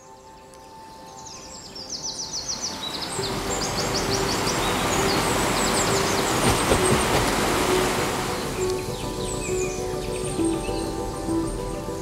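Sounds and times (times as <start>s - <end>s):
soft sustained music tones: 0.0s - 12.0s
songbirds trilling: 0.0s - 12.0s
rushing river water: 2.4s - 12.0s.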